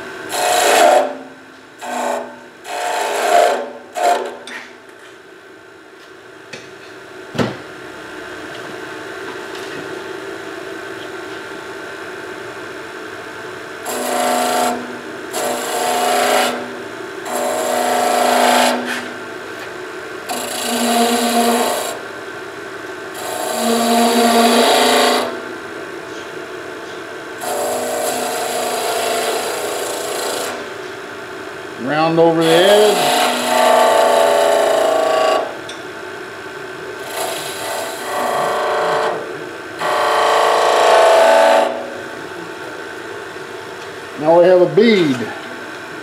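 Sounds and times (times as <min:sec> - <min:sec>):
chisel scraping spinning wood: 0:00.0 - 0:01.2, 0:01.8 - 0:04.7, 0:13.8 - 0:19.2, 0:20.3 - 0:22.0, 0:23.2 - 0:25.4, 0:31.8 - 0:35.6, 0:37.0 - 0:41.9
wood lathe running: 0:00.0 - 0:01.2, 0:01.8 - 0:04.4, 0:13.8 - 0:19.1, 0:20.2 - 0:22.0, 0:23.1 - 0:25.4, 0:27.4 - 0:30.7, 0:31.8 - 0:35.6, 0:37.0 - 0:42.0.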